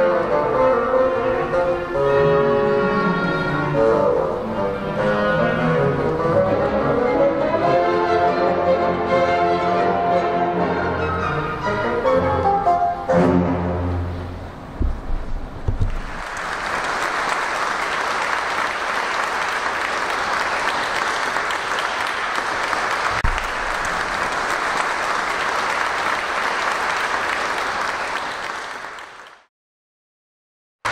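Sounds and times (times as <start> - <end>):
dull low thump: 14.8 - 16.2
audience applauding: 15.7 - 29.5.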